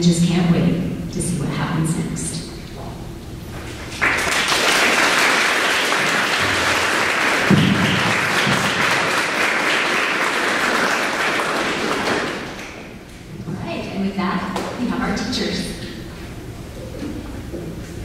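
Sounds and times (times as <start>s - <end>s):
audience applauding: 3.9s - 12.9s.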